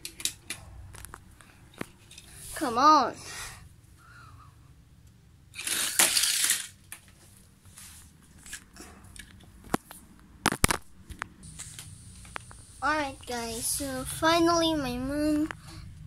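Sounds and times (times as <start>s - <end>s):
toy cars rattling on track: 5.5s - 6.8s.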